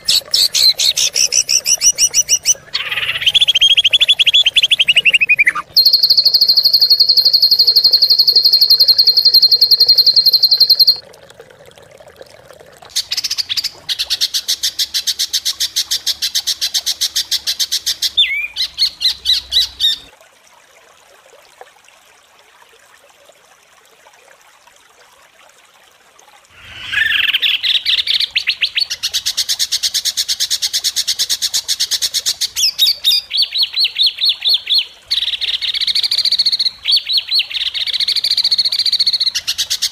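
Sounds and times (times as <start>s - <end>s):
songbird trilling: 0.0s - 11.0s, 18.2s - 20.1s.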